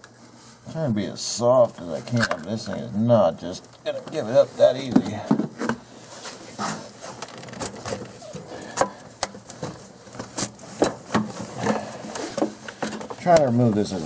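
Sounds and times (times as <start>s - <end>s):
rubber and plastic scraping and creaking: 3.9s - 8.6s.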